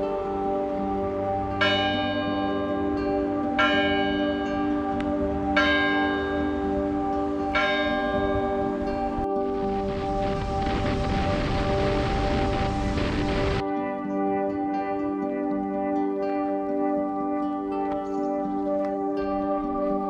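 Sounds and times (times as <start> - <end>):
church bell strikes: 0.0 - 13.7
hum of ringing bells: 0.0 - 20.0.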